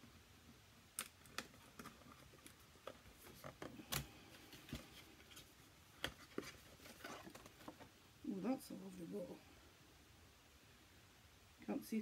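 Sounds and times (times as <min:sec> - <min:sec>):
box and wrapping being handled: 0:01.1 - 0:08.0.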